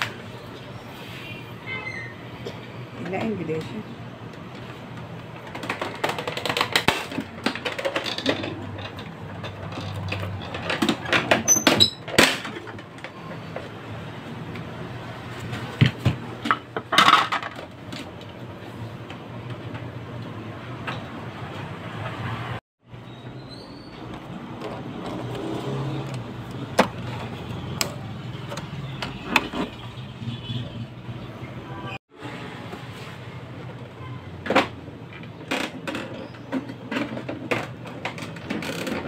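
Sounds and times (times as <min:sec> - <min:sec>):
plastic clicks and rattles: 0:05.4 - 0:11.4.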